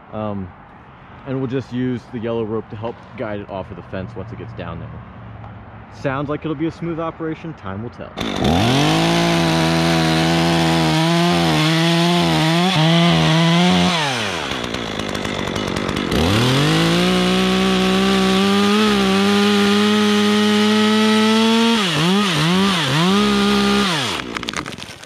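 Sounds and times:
chainsaw cutting wood: 0:08.2 - 0:25.0.

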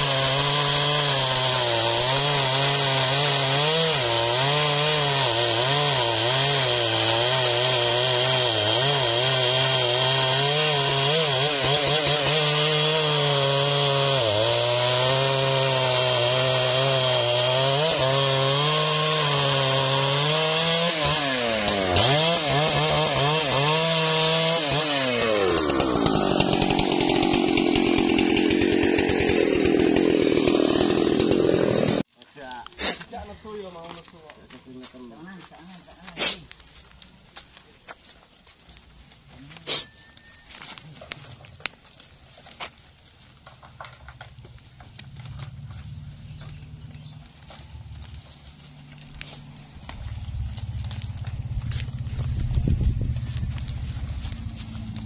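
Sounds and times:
chainsaw cutting a log: 0:00.0 - 0:32.1, 0:48.8 - 0:55.0
rough saw sound: 0:00.0 - 0:32.1.

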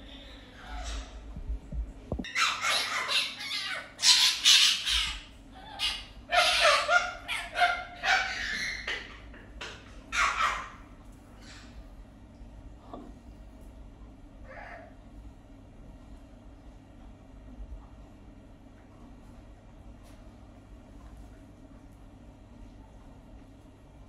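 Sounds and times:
fox squawking cries: 0:02.3 - 0:09.1, 0:10.1 - 0:11.7, 0:14.5 - 0:14.9.

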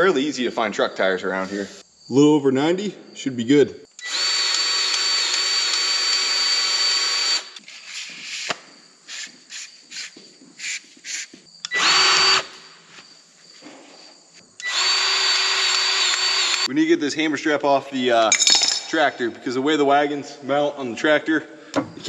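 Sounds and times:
grease gun motor whine: 0:04.0 - 0:07.6, 0:11.7 - 0:12.6, 0:14.6 - 0:16.7.

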